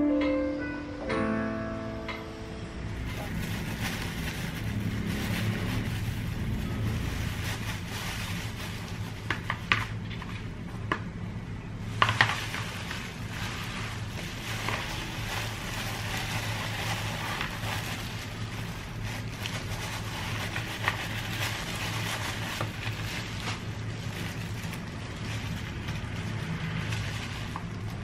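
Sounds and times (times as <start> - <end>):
electronic keyboard notes: 0.0 - 3.1
steady low hum: 1.1 - 28.0
plastic bag crinkling: 3.0 - 10.7, 11.8 - 28.0.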